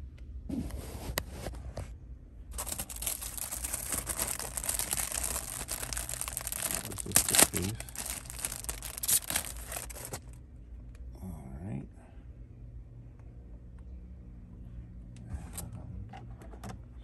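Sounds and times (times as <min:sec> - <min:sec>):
plastic bag crinkling: 0:02.5 - 0:10.4.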